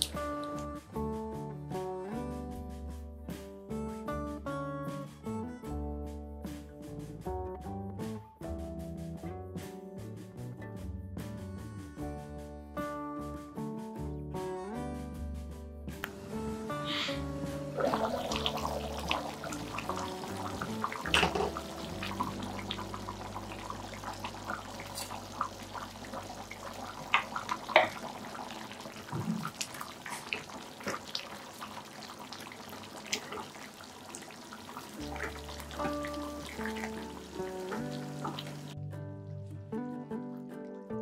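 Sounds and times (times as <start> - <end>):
gravy bubbling and popping: 17.7 - 38.8.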